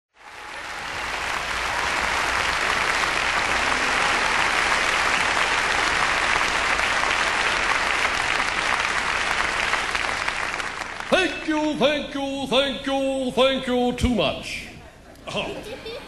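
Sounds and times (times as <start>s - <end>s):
audience applauding: 0.1s - 11.5s.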